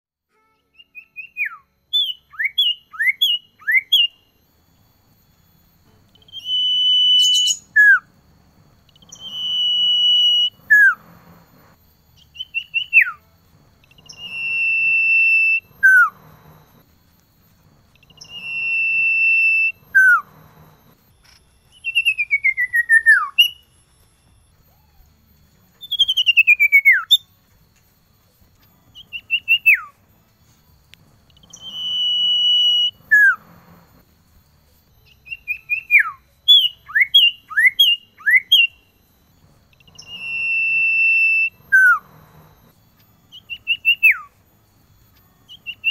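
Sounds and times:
bird singing whistles: 0.6s - 4.4s, 6.2s - 8.2s, 8.8s - 11.4s, 12.1s - 13.2s, 13.8s - 16.8s, 17.9s - 20.8s, 21.7s - 23.7s, 25.8s - 27.3s, 28.9s - 30.0s, 31.3s - 33.8s, 35.0s - 42.7s, 43.3s - 44.4s, 45.5s - 45.9s.

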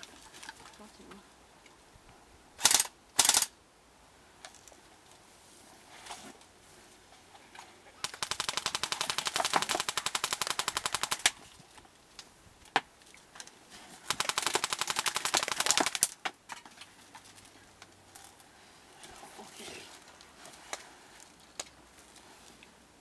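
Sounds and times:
airsoft rifle firing: 2.6s - 3.5s, 8.0s - 11.4s, 14.0s - 16.2s.

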